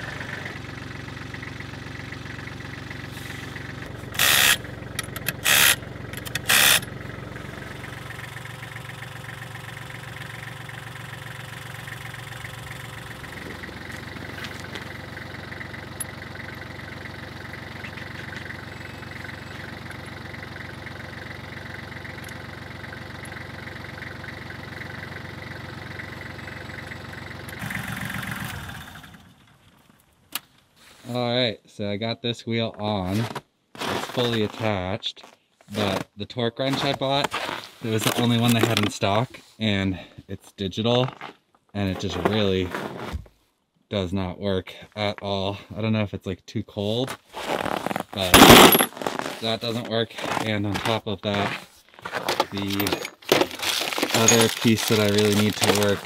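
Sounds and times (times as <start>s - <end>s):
tractor diesel engine idling: 0.0s - 29.4s, 52.5s - 56.0s.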